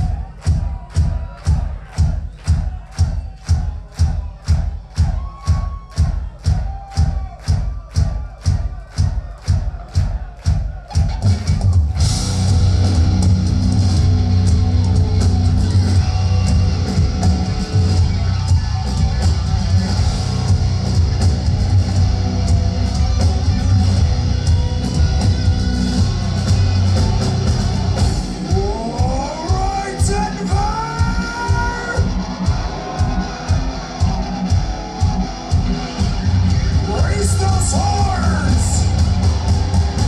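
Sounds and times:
heavy metal band playing: 0.0 - 40.0.

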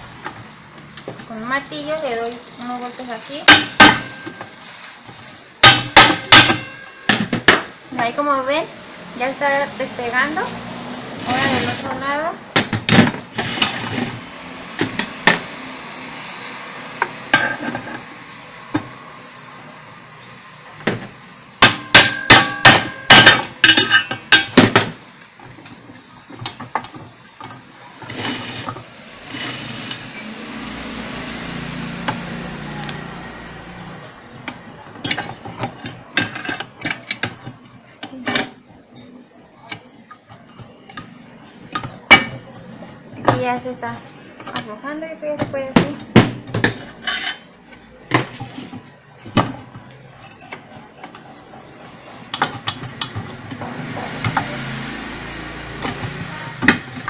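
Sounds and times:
hammer blows on motor cover: 3.5 - 4.4.

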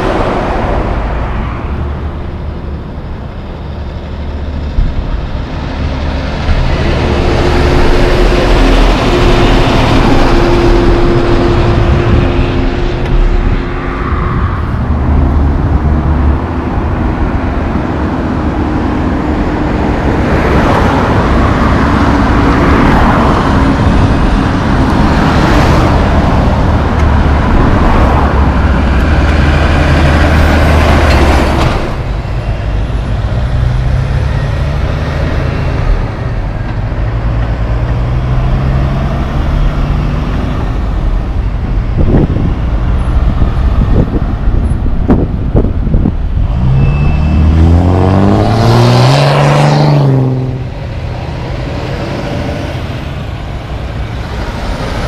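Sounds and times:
engine drone: 0.0 - 55.0
trucks passing: 0.0 - 55.0.

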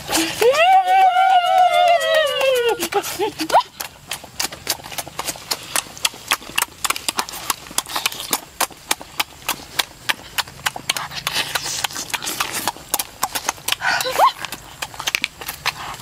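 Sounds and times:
chewing and lip smacks: 2.8 - 16.0.

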